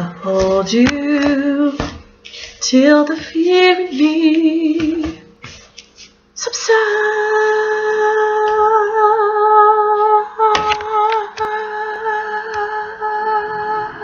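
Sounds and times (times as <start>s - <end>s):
woman singing unaccompanied: 0.0s - 5.4s, 6.4s - 14.0s.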